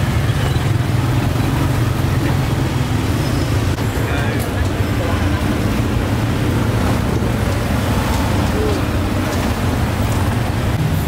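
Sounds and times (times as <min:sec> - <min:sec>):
low rumble of street traffic: 0:00.0 - 0:11.0
faint voices: 0:03.8 - 0:06.4, 0:08.3 - 0:09.5.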